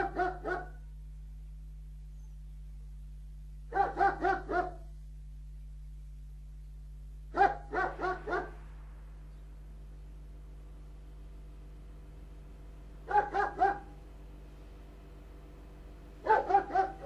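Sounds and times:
dog barking: 0.0s - 0.8s, 3.7s - 4.9s, 7.3s - 8.6s, 13.1s - 14.0s, 16.2s - 17.0s
steady low hum: 0.0s - 17.0s.

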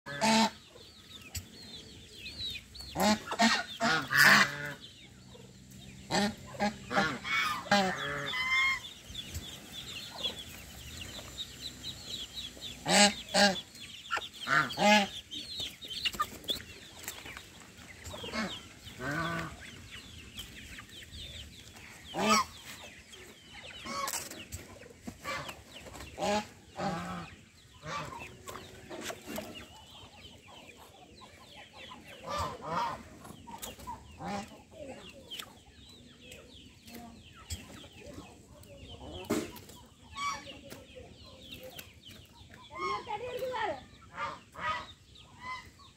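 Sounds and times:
chickens clucking: 0.1s - 45.9s
chicks peeping: 0.1s - 45.9s.

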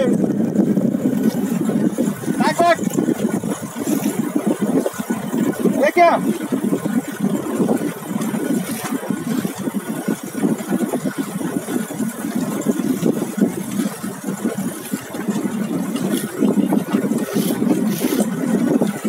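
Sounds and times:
outboard engine running: 0.0s - 19.0s
water slapping hull: 0.0s - 19.0s
wind buffeting microphone: 0.0s - 19.0s.

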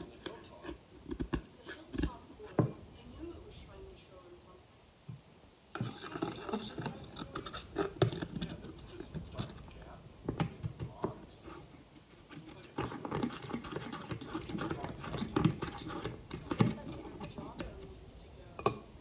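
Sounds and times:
knife scraping eyeshadow: 5.8s - 9.7s, 11.4s - 17.8s.

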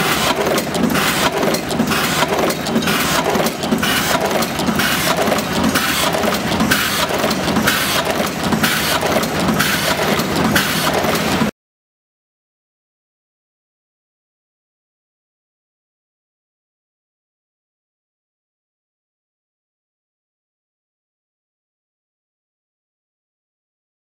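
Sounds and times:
crimping machine clattering: 0.0s - 11.5s.

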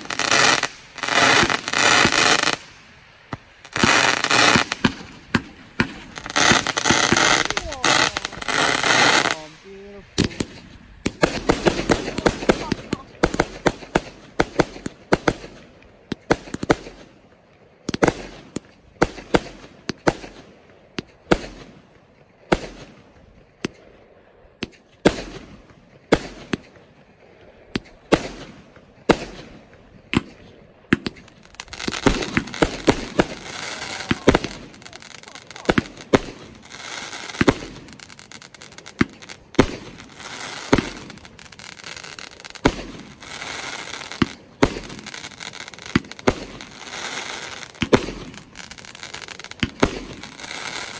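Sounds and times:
fireworks bangs: 0.0s - 17.2s, 27.7s - 50.9s
fireworks crackling: 0.0s - 50.9s.

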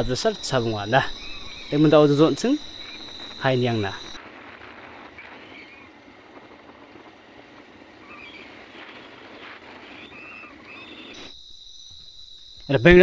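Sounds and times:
high cricket trill: 0.0s - 5.9s, 8.1s - 13.0s
road and wind noise from vehicle: 1.4s - 11.2s.

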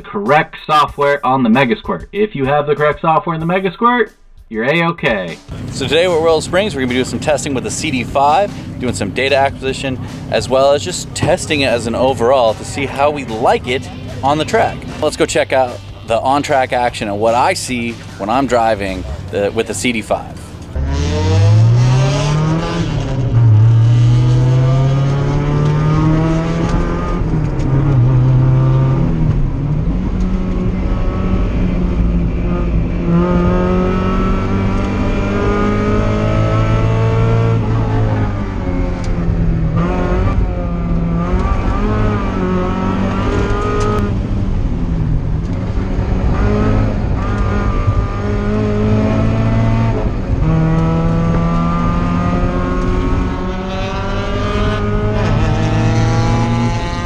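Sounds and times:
race car engine at full throttle: 5.2s - 57.0s.

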